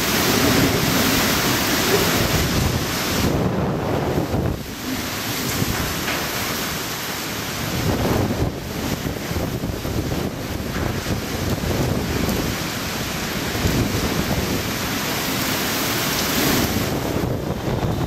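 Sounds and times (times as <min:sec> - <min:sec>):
gusting wind: 0:00.0 - 0:18.0
torrential driving rain: 0:00.0 - 0:18.0.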